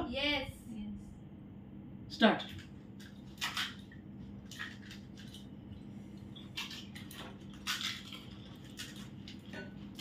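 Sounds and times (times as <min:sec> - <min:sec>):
crisp shells cracking: 0:06.5 - 0:09.5.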